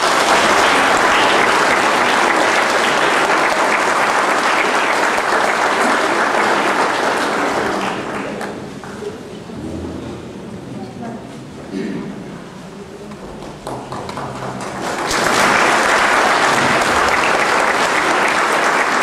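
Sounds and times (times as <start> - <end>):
audience applauding: 0.0 - 9.2, 13.5 - 19.0.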